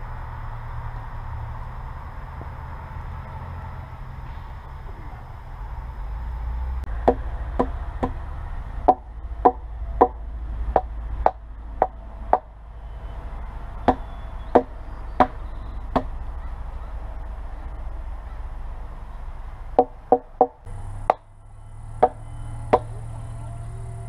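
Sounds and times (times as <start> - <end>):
hammer knocking on wood: 7.0 - 8.2, 13.9 - 16.1, 19.8 - 21.2.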